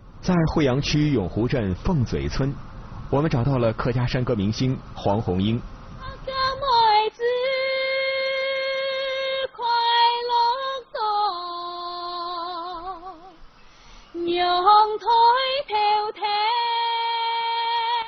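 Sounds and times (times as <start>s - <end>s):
woman singing solo: 14.2s - 18.0s.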